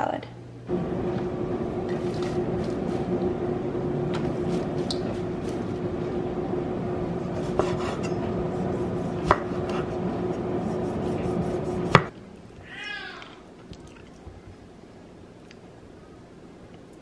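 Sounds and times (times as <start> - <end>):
steady hum and hiss: 0.0 - 17.0
knife slicing tomatoes: 7.2 - 12.1.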